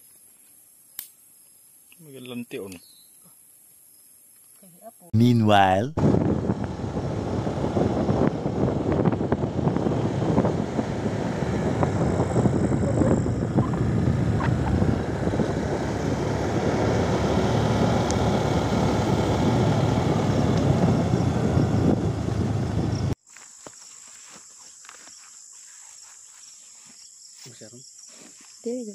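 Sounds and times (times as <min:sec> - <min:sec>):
wind noise: 0:05.2 - 0:23.2
motorcycle engine and road rumble: 0:06.0 - 0:23.2.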